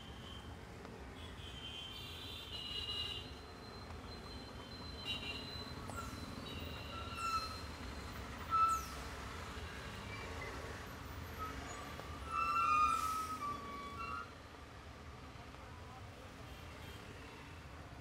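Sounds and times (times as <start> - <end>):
traffic rumble: 0.0 - 18.0
tyres hissing on wet road: 8.3 - 14.2.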